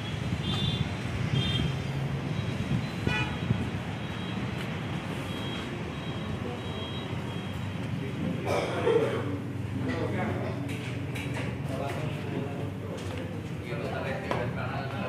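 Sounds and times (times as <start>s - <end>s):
low traffic rumble: 0.0s - 15.0s
vehicle horn toot: 0.4s - 1.7s, 2.4s - 4.4s.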